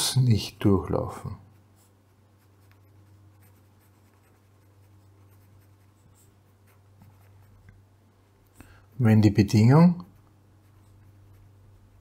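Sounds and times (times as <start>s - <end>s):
steady low hum: 0.0s - 12.0s
pen scratching on paper: 1.8s - 7.7s, 10.1s - 12.0s.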